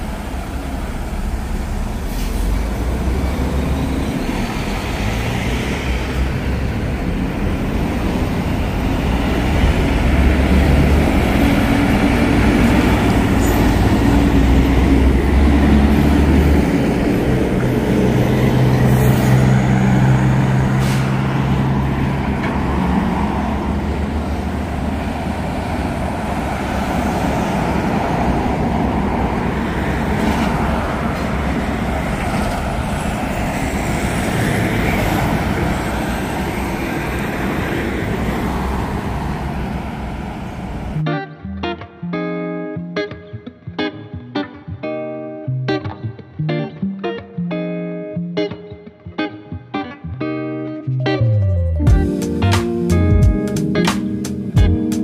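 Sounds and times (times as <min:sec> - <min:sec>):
trucks driving past: 0:00.0 - 0:41.1.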